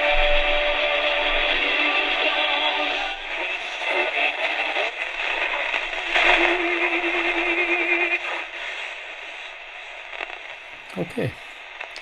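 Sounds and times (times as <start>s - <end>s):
radio speaker broadcast: 3.3s - 8.9s, 10.8s - 11.6s.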